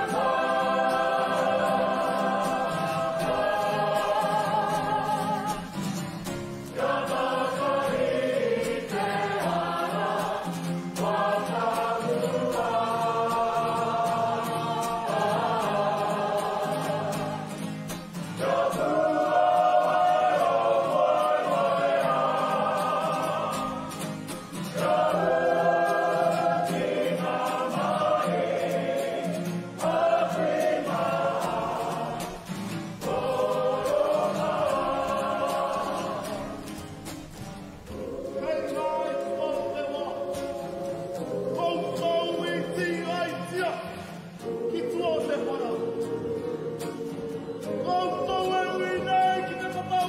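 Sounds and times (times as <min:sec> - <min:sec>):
group of voices singing: 0:00.0 - 0:50.0.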